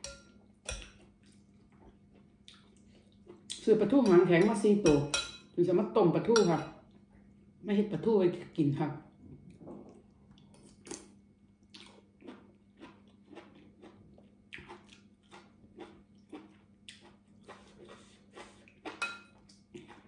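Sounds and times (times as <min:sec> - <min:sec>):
metal spoon clinking on glass bowl: 0:00.0 - 0:00.9, 0:04.0 - 0:05.5, 0:06.4 - 0:06.7
chewing and lip-smacking: 0:00.8 - 0:03.6, 0:09.9 - 0:20.0.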